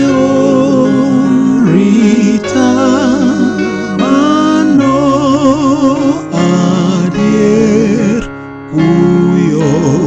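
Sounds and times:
man singing a hymn: 0.0 - 10.0
soft instrumental accompaniment: 0.0 - 10.0.

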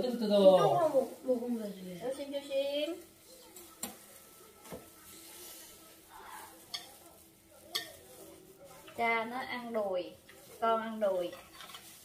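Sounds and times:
crinkly rustling of gloves: 0.3 - 12.0.

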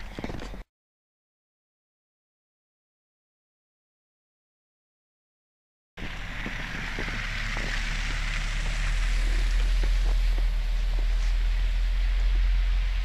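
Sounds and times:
wind on microphone: 6.0 - 13.0.

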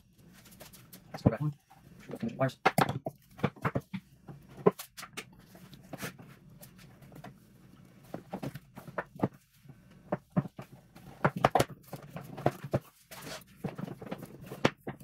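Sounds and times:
plastic case clicks and knocks: 2.6 - 4.0.

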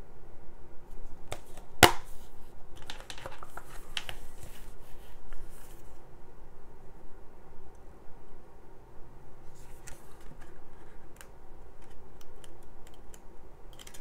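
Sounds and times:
paper insert rustling: 1.3 - 6.0.

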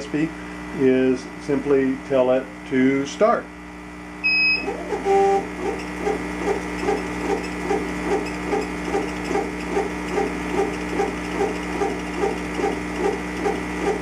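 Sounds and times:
steady machine hum: 0.0 - 14.0
laser carriage whirring pulse: 4.3 - 14.0.

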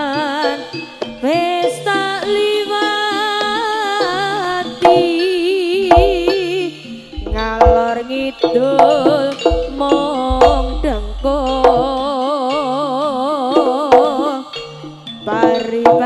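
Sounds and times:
heavy low drum beats: 5.9 - 6.5, 7.1 - 12.3
wavering melody line: 7.1 - 12.2.

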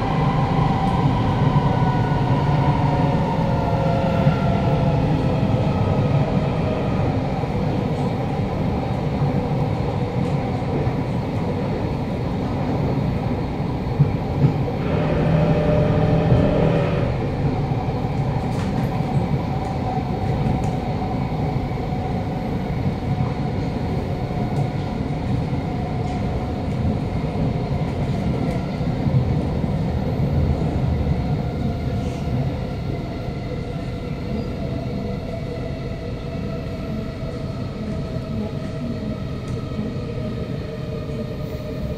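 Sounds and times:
wheels rumbling on rails: 0.0 - 22.5
traction motors humming: 14.7 - 17.6.

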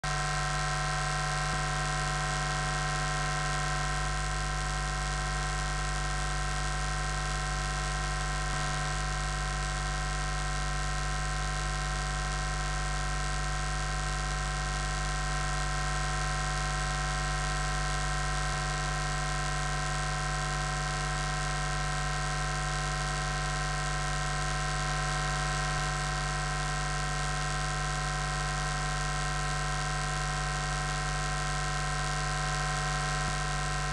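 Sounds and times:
constant electrical hum: 0.0 - 33.9.

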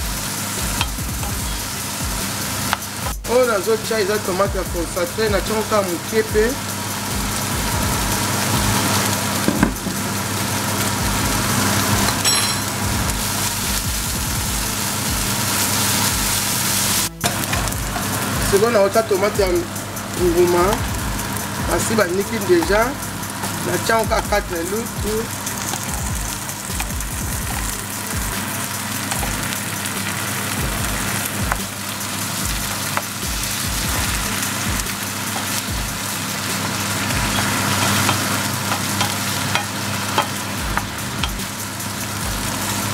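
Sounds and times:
onions sizzling in hot oil: 0.0 - 42.9
low hum: 11.0 - 18.5, 19.4 - 31.6
spoon clicking against pan: 37.4 - 40.4.

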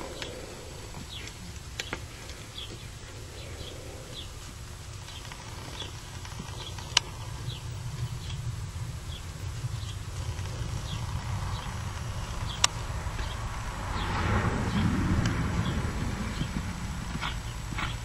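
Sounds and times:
horse hoofbeats on dirt: 0.0 - 18.0
low rumble: 0.0 - 18.0
sharp clicks: 9.8 - 13.3.

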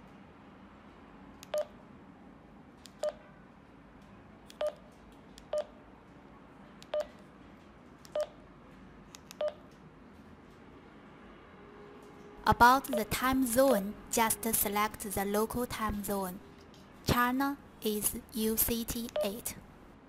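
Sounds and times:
radio keypad beeps: 19.0 - 19.5.

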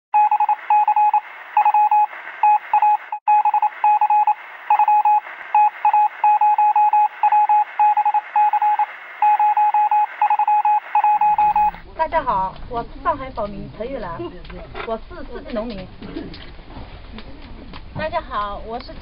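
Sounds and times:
morse code beeping: 0.2 - 11.8.

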